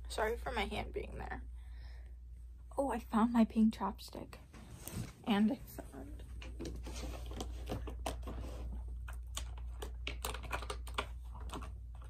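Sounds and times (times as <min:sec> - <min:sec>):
plastic tubes clicking and rattling: 0:09.3 - 0:12.0.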